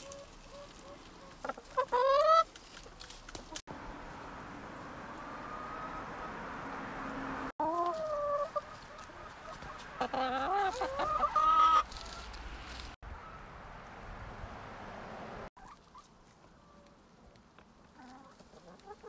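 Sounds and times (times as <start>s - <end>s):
hens clucking: 0.0s - 3.6s, 7.6s - 12.4s, 15.6s - 19.0s.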